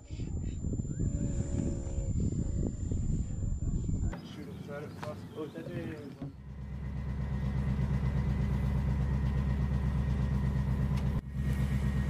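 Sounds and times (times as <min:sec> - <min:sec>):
diesel engine idling: 0:06.2 - 0:12.0.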